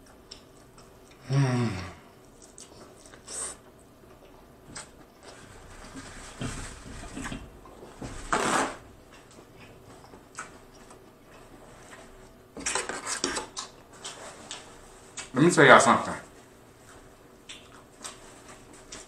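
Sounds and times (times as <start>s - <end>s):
soft chewing and clicks: 0.0s - 1.2s, 2.2s - 5.4s, 9.1s - 12.0s, 13.4s - 15.4s, 16.4s - 19.0s.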